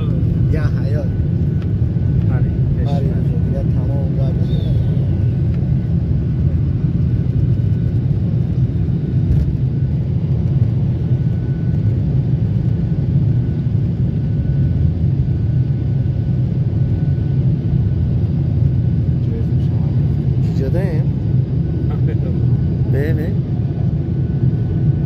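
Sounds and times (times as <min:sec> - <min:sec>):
jet airliner cabin rumble: 0:00.0 - 0:25.0.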